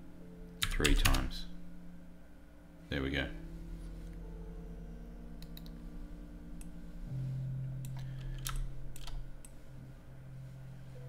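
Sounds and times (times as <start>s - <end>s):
steady low hum: 0.0s - 11.0s
keyboard and mouse clicks: 0.6s - 1.2s, 5.4s - 5.8s, 7.8s - 9.6s.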